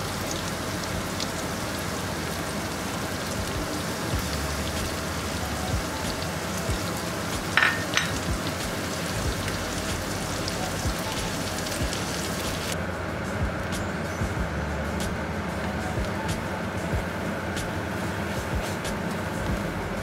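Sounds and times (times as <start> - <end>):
sauce sizzling in a pan: 0.0 - 12.8.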